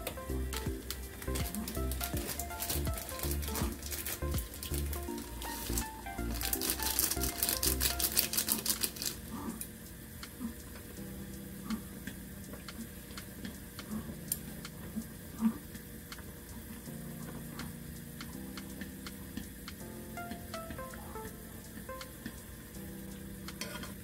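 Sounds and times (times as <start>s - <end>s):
plastic sachet crackling: 0.0s - 9.5s
soft background music: 0.0s - 24.0s.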